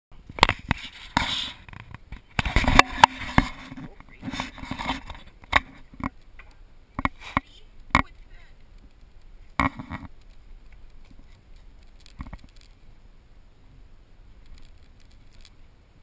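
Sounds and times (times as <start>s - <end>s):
camera handling knocks and rubs: 0.4s - 6.2s.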